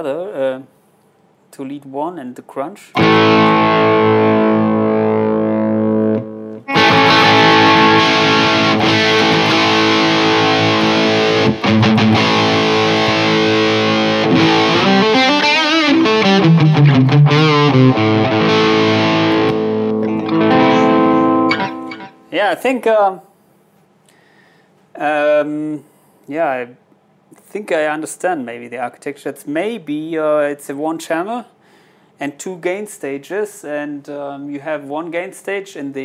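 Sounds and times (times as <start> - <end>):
distorted electric guitar: 3.0 - 22.3.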